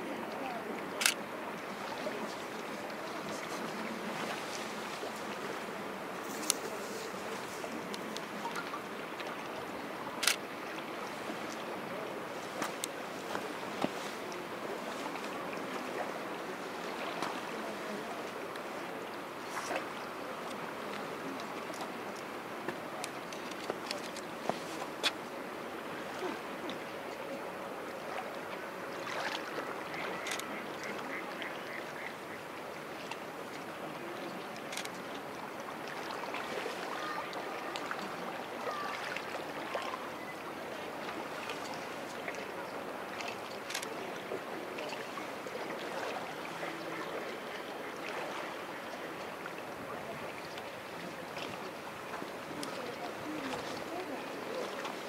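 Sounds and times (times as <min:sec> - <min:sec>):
sea water washing: 0:00.0 - 0:55.0
faint ticks: 0:06.3 - 0:06.7.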